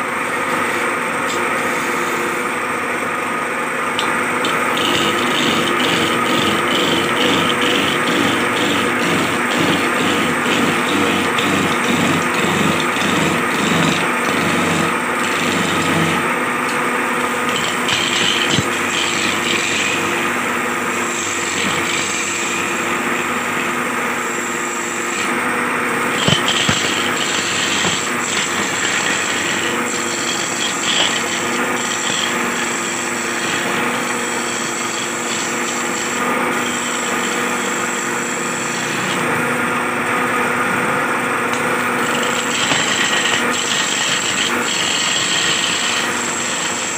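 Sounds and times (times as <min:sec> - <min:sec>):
chisel scraping spinning wood: 0:00.0 - 0:46.9
wood lathe humming: 0:00.0 - 0:46.9.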